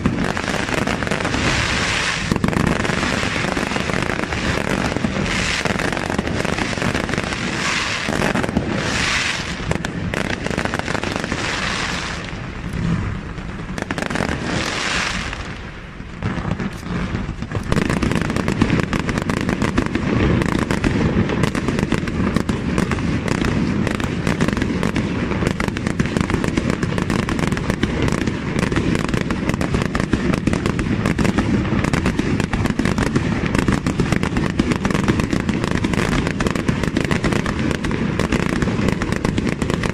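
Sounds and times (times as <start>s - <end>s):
fireworks shells bursting: 0.0s - 13.0s
crackling fireworks stars: 0.0s - 39.9s.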